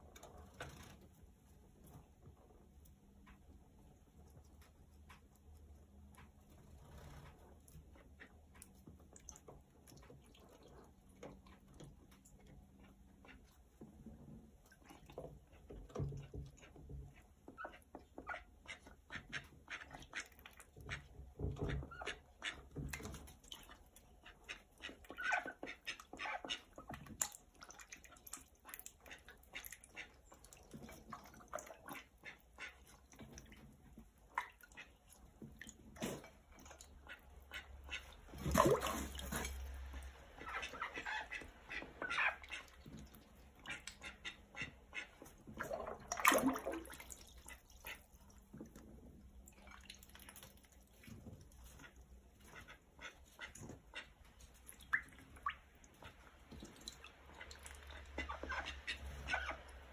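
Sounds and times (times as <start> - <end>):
bills dabbling and splashing water: 0.0 - 59.9
ducks quacking: 16.0 - 48.4, 49.6 - 59.9.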